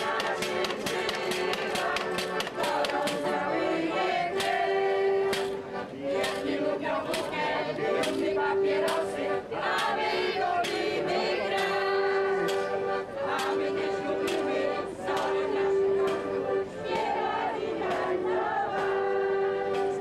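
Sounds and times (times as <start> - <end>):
sharp percussive beats: 0.0 - 3.7, 8.0 - 16.3
group of voices singing: 0.0 - 20.0.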